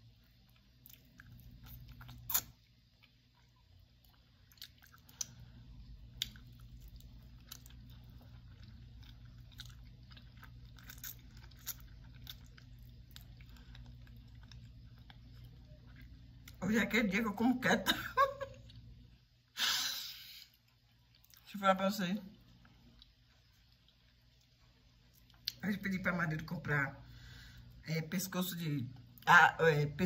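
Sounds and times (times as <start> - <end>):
person chewing chicken: 0.0 - 16.6
steady low hum: 0.0 - 30.0.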